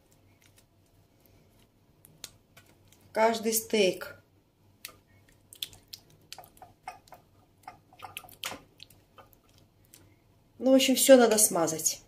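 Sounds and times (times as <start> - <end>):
spoon spreading sauce on tray: 5.6 - 9.7.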